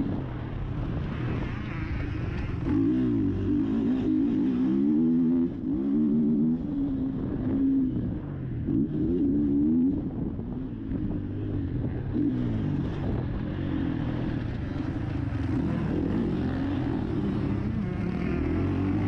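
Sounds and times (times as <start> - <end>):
motocross bike engine revving: 12.1 - 19.0.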